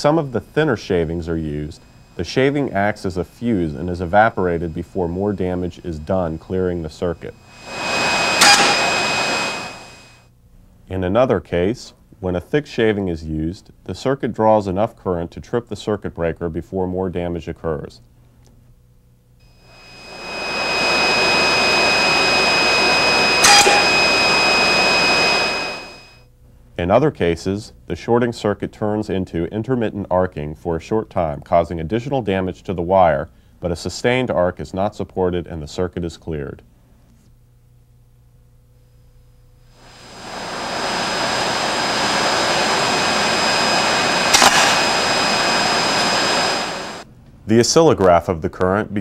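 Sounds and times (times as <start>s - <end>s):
thin high whines: 0.0s - 10.3s, 19.4s - 26.3s, 39.6s - 47.1s
steady rushing noise: 7.3s - 10.2s, 19.7s - 26.1s, 39.8s - 47.0s
brief sharp crackle: 23.4s - 24.2s, 44.2s - 45.5s
electrical arcing snaps: 44.2s - 45.2s.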